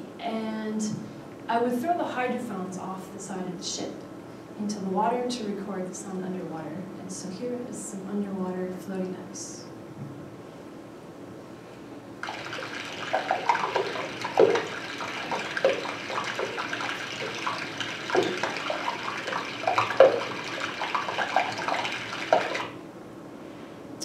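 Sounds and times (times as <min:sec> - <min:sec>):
underwater ice fizzing and crackling: 0:12.2 - 0:22.8.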